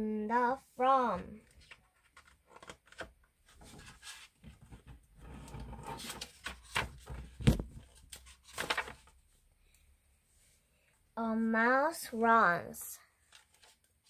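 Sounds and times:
paper pages rustling: 1.5s - 5.0s, 5.7s - 9.3s, 13.2s - 14.0s
pages knocking flat: 6.4s - 7.8s.

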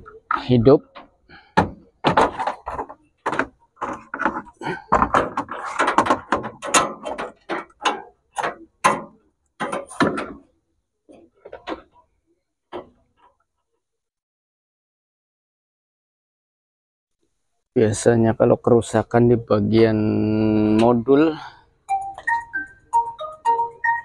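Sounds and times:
knocks and clattering on metal: 0.0s - 12.0s.

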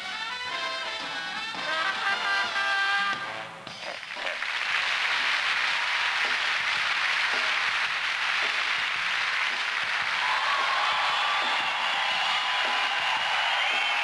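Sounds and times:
audience applauding: 3.9s - 14.0s.

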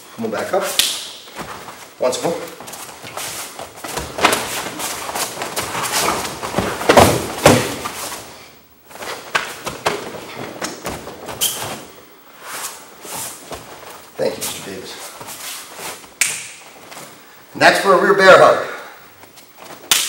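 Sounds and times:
uniforms rustling: 0.0s - 20.0s
bodies thudding on mats: 1.3s - 12.0s, 13.1s - 17.2s.

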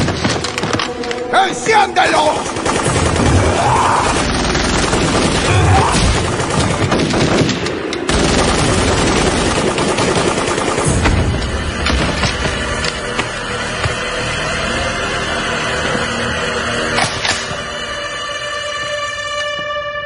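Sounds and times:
submachine gun automatic fire: 2.4s - 11.1s.

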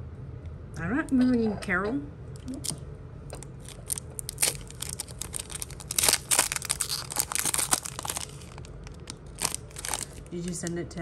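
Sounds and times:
foil wrapper tearing and crinkling: 3.4s - 10.3s.

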